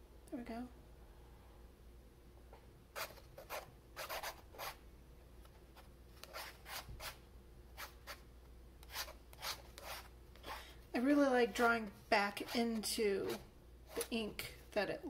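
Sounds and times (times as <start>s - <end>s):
pen scratching across paper: 3.0s - 4.8s, 6.2s - 7.2s, 8.8s - 10.6s.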